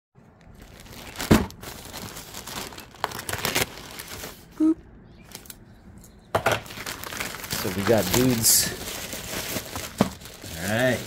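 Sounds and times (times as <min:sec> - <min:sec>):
plastic mailer crinkling: 0:00.4 - 0:04.5, 0:06.4 - 0:11.0.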